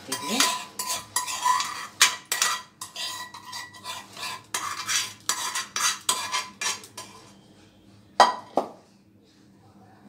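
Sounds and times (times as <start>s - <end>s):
stirring through mesh strainer: 0.0s - 7.3s
metal spoon scraping pan: 0.0s - 7.4s.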